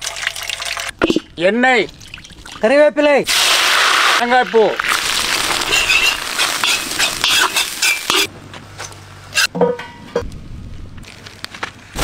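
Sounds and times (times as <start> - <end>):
metal utensil scraping a wok: 5.6 - 8.3.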